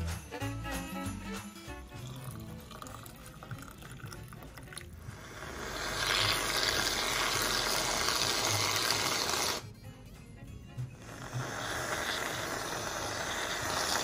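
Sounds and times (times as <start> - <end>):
hot chocolate pouring into mug: 1.8 - 9.6, 11.0 - 14.0
aerosol can spraying cream: 5.3 - 9.6, 11.0 - 14.0.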